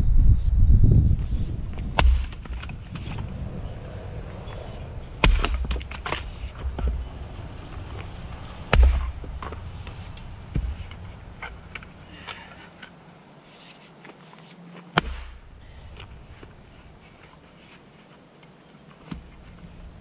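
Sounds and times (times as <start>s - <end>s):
axe striking firewood: 1.8s - 3.2s, 5.2s - 7.0s, 8.7s - 12.5s, 14.9s - 15.6s.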